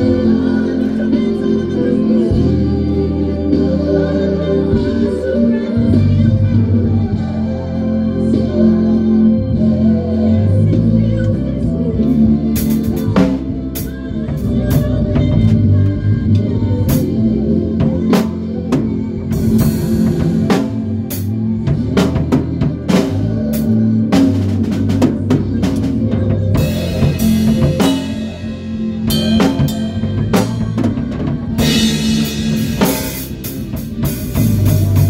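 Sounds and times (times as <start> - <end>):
low bass notes: 0.0 - 35.0
drum kit groove: 10.6 - 35.0.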